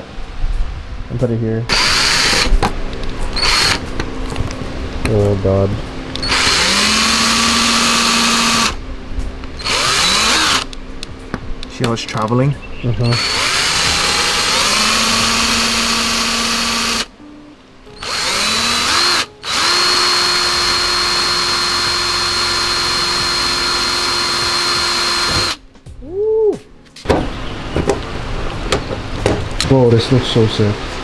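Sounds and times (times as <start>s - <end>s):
cordless drill whining: 1.7s - 2.5s, 3.3s - 3.8s, 6.2s - 8.8s, 9.6s - 10.7s, 13.1s - 17.1s, 18.0s - 25.6s.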